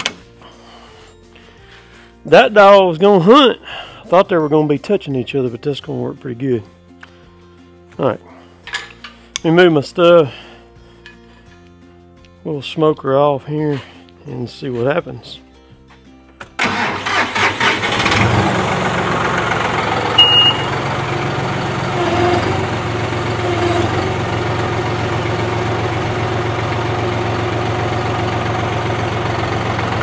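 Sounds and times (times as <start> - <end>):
tractor engine starting and idling: 16.6 - 30.0
short high beep: 20.2 - 20.8.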